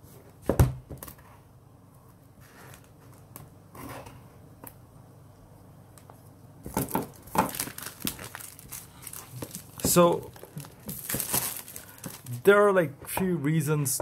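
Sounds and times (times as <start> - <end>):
plastic wrap rustling: 6.7 - 12.6.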